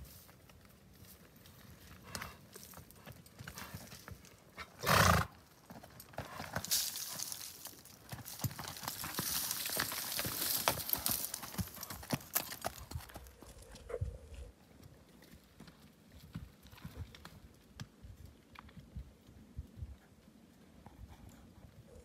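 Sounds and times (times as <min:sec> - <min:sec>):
hoof steps on dirt and rock: 0:00.0 - 0:21.9.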